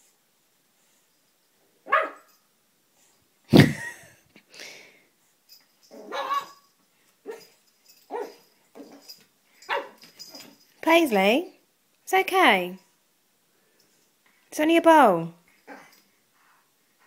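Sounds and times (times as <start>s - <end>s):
puppy barking: 1.9s - 2.3s, 6.0s - 6.6s, 8.1s - 8.4s, 9.7s - 10.0s.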